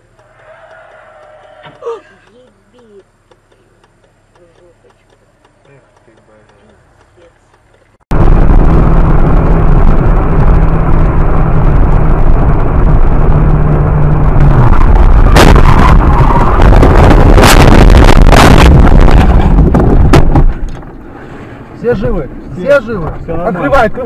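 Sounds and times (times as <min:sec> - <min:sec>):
car engine and tyres drone: 0:00.0 - 0:24.0
crunching impacts and scraping: 0:07.8 - 0:21.1
car crash: 0:14.6 - 0:21.4.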